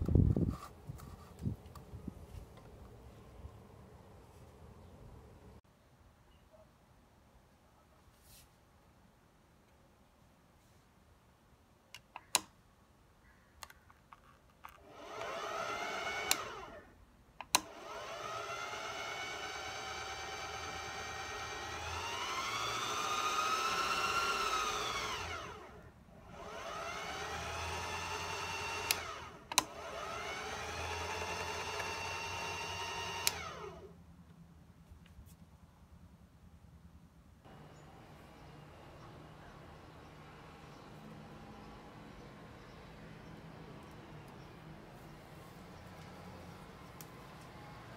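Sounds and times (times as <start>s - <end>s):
foot switch clicks: 11.9s - 12.6s
sewing machine motor whining: 14.8s - 16.9s, 17.5s - 33.9s, 37.5s - 45.0s.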